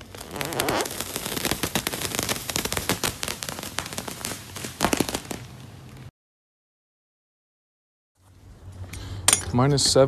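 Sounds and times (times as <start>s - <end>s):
plastic wrapping crinkling: 0.0s - 6.1s.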